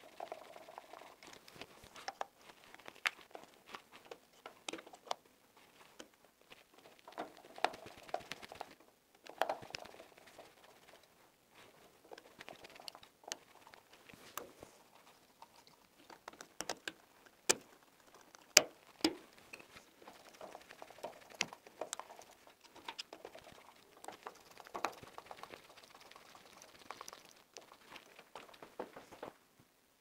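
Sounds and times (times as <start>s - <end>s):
light clicks and taps: 12.8s - 20.4s.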